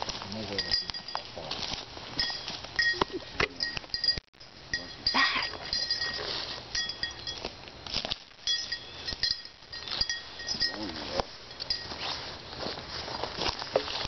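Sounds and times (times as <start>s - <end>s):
footsteps crunching dry leaves: 0.0s - 2.8s, 6.0s - 14.0s
light metallic clinks: 0.4s - 1.6s, 2.2s - 12.2s.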